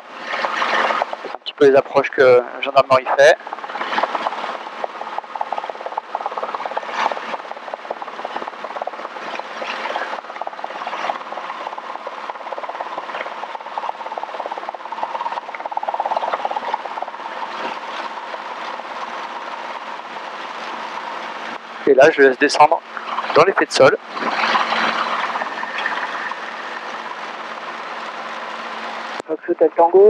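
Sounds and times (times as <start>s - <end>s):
helicopter engine and rotors droning: 0.0s - 29.9s.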